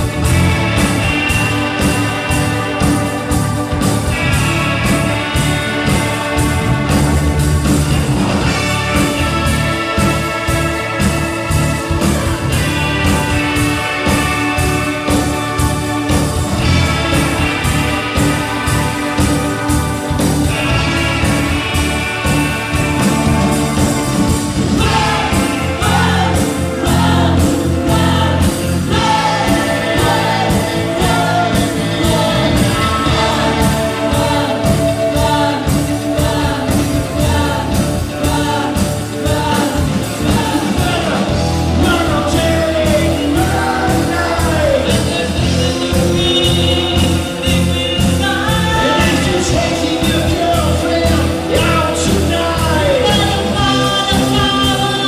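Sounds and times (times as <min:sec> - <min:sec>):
live rock band: 0:00.0 - 0:55.0
man singing lead vocal: 0:24.7 - 0:55.0.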